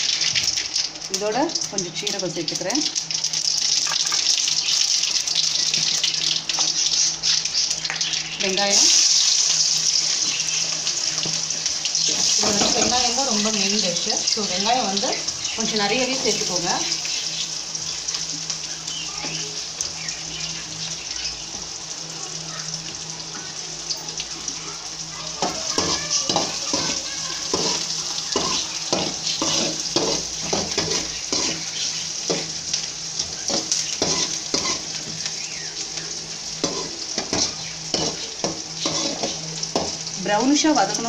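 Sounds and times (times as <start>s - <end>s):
onions sizzling in oil: 0.0s - 41.0s
spatula scraping a metal pan: 25.4s - 32.4s, 33.3s - 35.0s, 36.6s - 39.4s.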